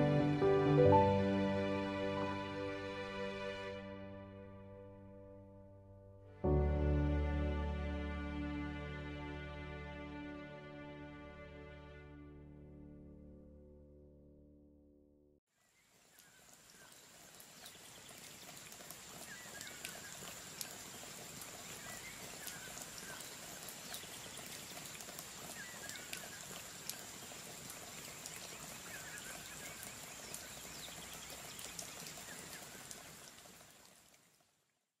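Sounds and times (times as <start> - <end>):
rain-like pattering: 15.7 - 34.7
drips: 16.0 - 34.6.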